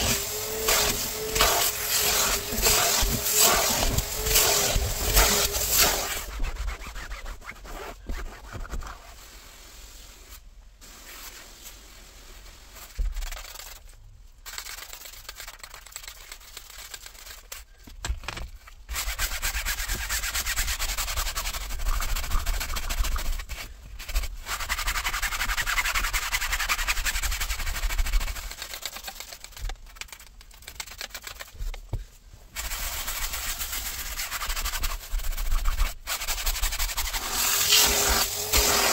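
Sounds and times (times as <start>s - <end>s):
brush scrubbing fabric: 0.0s - 13.8s, 14.4s - 17.6s, 18.9s - 31.7s, 32.5s - 38.9s
spray bottle squirts: 37.1s - 38.9s.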